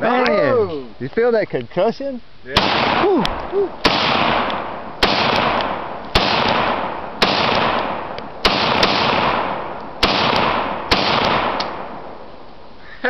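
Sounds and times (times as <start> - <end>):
rifle shots with echo: 2.5 - 12.2.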